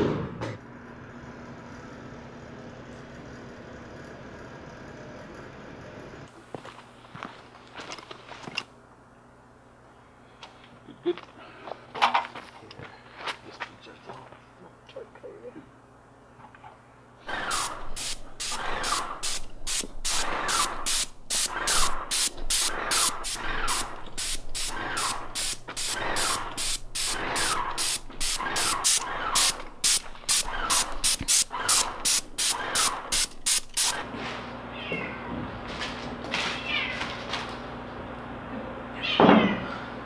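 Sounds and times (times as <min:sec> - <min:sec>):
paint sprayer hissing in bursts: 0:17.2 - 0:34.1.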